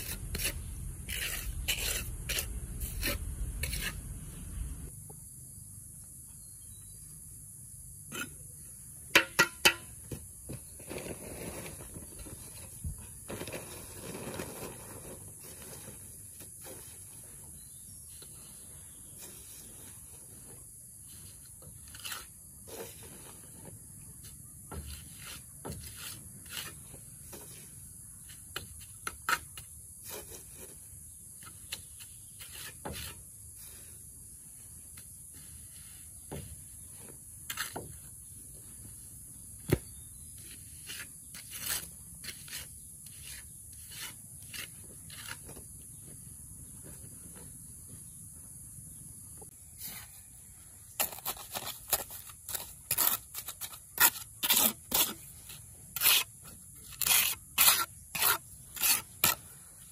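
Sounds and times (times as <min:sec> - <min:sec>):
scraping and knocking of building work: 0:00.0 - 0:04.9, 0:19.2 - 0:33.4, 0:36.2 - 0:38.2
steady high-pitched hiss: 0:00.0 - 0:59.9.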